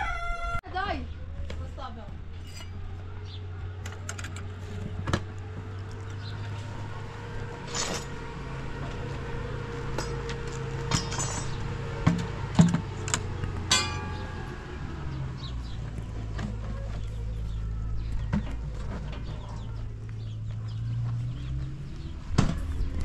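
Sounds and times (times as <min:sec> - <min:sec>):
kitchenware clinking: 0:13.7 - 0:14.5.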